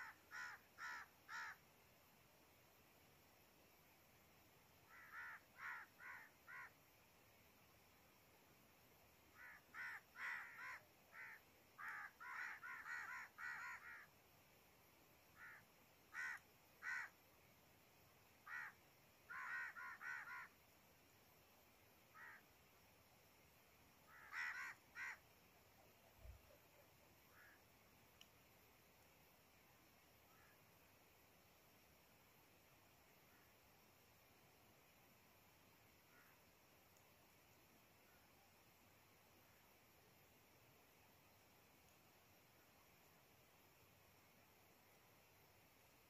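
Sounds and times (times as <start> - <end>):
crows cawing faintly: 0.0 - 1.7, 4.8 - 6.9, 9.3 - 14.2, 15.3 - 17.2, 18.4 - 20.6, 22.1 - 22.5, 24.0 - 27.7, 30.2 - 30.7, 33.2 - 33.6, 36.0 - 36.5.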